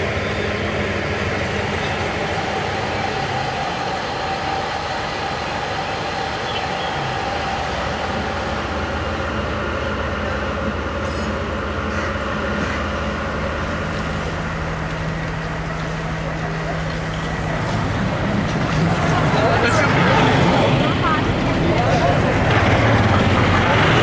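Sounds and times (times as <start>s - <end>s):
train rumbling: 0.0s - 24.0s.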